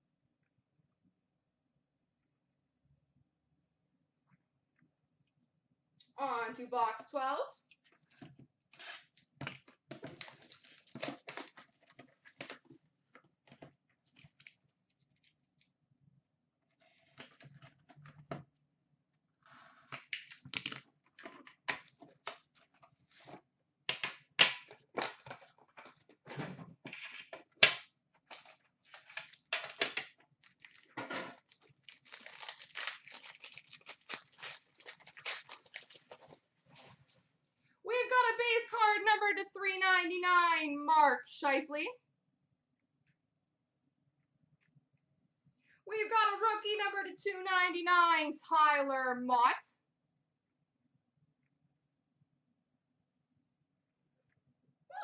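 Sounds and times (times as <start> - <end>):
packaging tearing and crinkling: 10.1 - 12.6, 28.3 - 29.5, 30.4 - 36.4.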